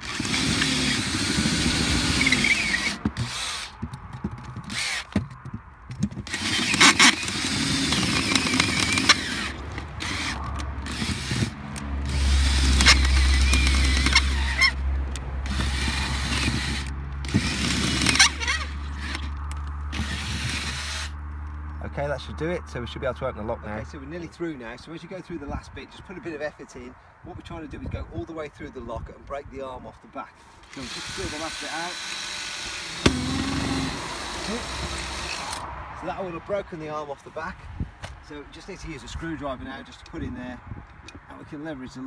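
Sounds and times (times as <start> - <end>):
drill grinding through metal: 0.0 - 5.2, 6.1 - 14.8, 15.4 - 21.2, 30.6 - 35.7.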